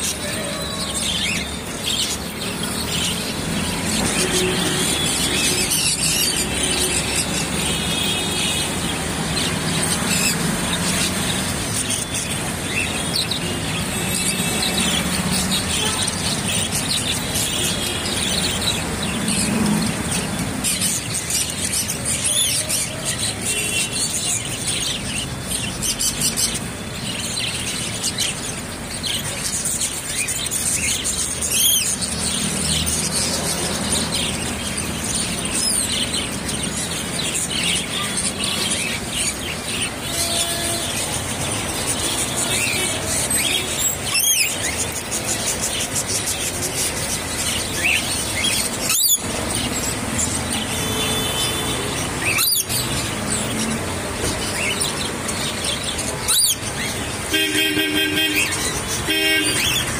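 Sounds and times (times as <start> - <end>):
small birds chirping and chattering: 0.0 - 59.9
sharp bird squeals: 48.8 - 49.2, 52.2 - 52.9, 56.2 - 56.6.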